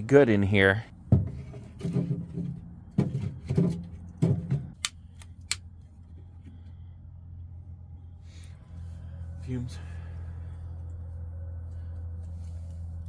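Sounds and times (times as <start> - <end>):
logs knocking and rustling: 1.0 - 4.8.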